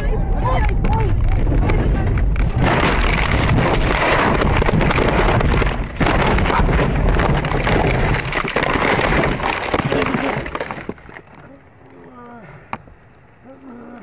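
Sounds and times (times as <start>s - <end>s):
sharp clatters: 2.1s - 11.4s.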